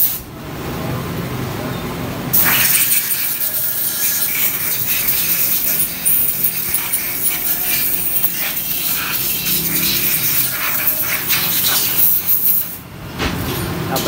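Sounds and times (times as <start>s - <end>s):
spray gun hissing: 2.4s - 12.8s.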